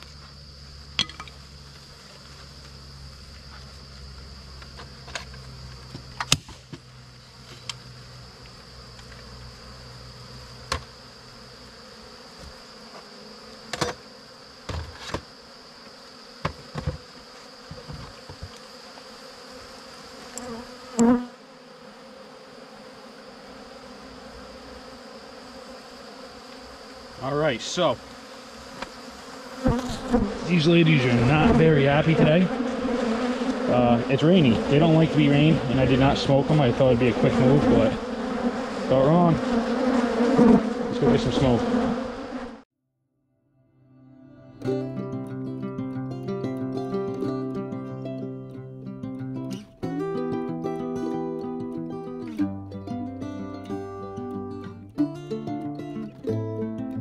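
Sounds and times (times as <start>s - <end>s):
bees buzzing: 0.0s - 42.6s
knocks on wooden hive boxes: 13.7s - 14.0s, 14.6s - 15.3s, 16.4s - 18.6s.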